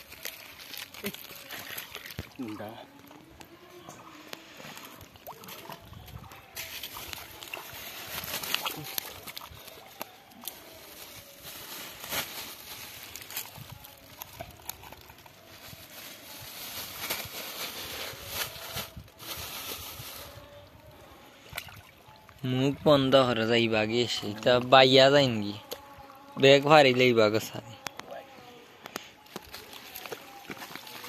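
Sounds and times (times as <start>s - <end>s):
plastic bag rustling: 0.0s - 3.4s, 4.1s - 20.5s, 28.8s - 31.0s.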